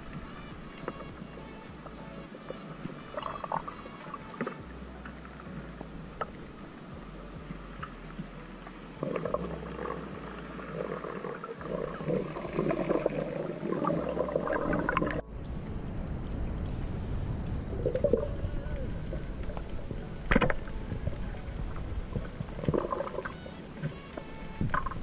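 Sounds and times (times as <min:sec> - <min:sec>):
low underwater rumble: 0:00.0 - 0:25.0
muffled underwater rush: 0:00.0 - 0:25.0
bubbling and gurgling: 0:02.7 - 0:06.8, 0:09.0 - 0:15.3, 0:17.4 - 0:25.0.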